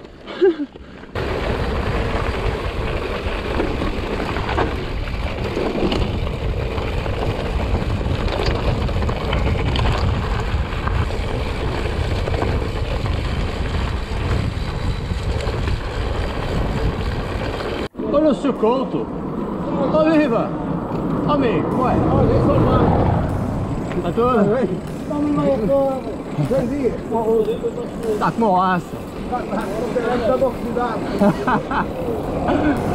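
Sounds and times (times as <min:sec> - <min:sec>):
bike knocking over bumps: 0:01.1 - 0:17.9
wind buffeting microphone: 0:01.2 - 0:32.9.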